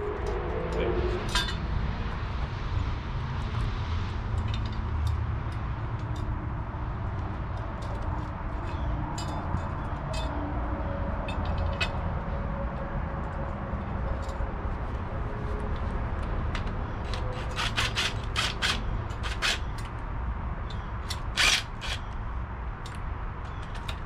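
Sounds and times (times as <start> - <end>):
cordless drill driving a bolt: 17.1 - 19.7, 21.0 - 22.1.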